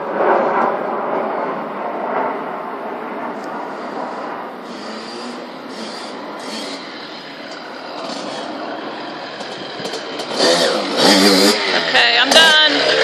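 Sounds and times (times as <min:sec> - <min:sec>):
dirt bike engine revving: 0:04.6 - 0:13.0.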